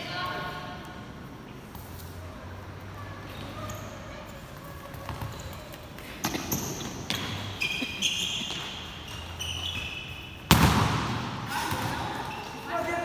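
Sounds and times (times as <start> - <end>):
sneakers squeaking on floor: 3.0 - 13.0
loud ball strike bang: 10.5 - 12.0.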